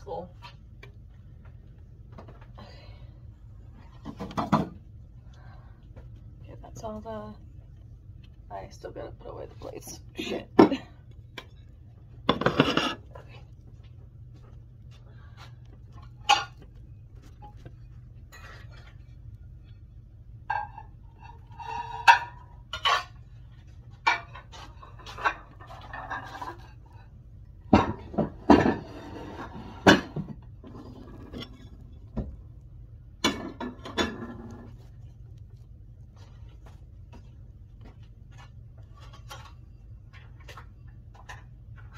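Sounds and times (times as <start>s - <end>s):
steady low hum: 0.0s - 41.9s
dishes clinking and knocking: 4.0s - 4.9s, 11.4s - 13.3s, 27.7s - 32.4s, 33.2s - 34.7s.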